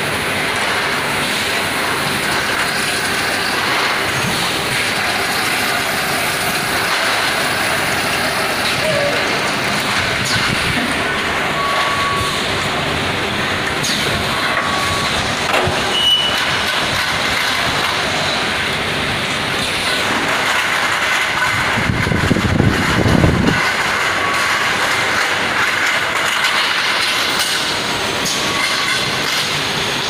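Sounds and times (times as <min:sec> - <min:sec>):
production line mechanical din: 0:00.0 - 0:30.0
short high beeps: 0:11.5 - 0:12.4, 0:14.3 - 0:15.2.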